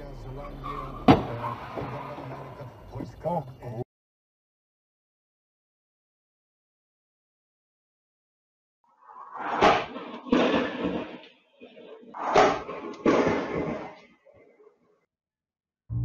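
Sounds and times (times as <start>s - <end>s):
car crashing into kerb: 0.7s - 2.6s.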